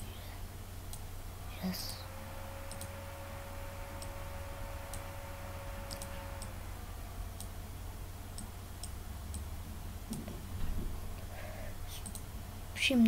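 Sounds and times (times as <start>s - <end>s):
low hum: 0.0s - 13.0s
faint thin whine: 1.3s - 9.0s
computer mouse clicking: 2.7s - 3.0s, 5.8s - 6.5s, 12.0s - 12.3s.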